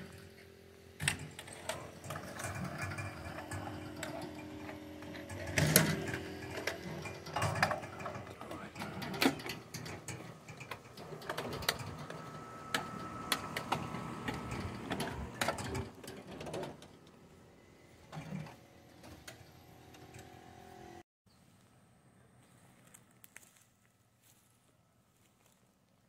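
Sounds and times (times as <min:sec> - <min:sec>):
metal cart rattling over ground: 0:01.1 - 0:17.0.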